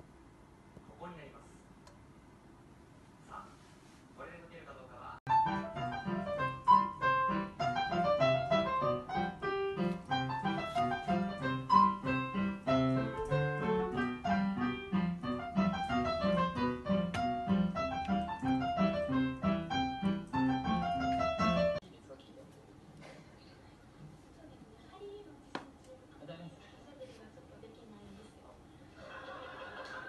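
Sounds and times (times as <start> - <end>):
piano music: 5.3 - 21.8.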